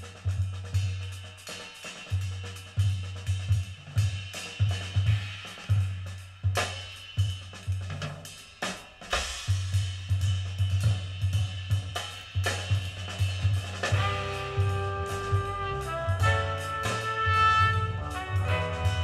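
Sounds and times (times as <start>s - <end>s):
jazz record over loudspeakers: 0.0s - 19.0s
snare drum hits: 8.0s - 9.8s, 11.9s - 19.0s
low bass notes: 13.9s - 19.0s.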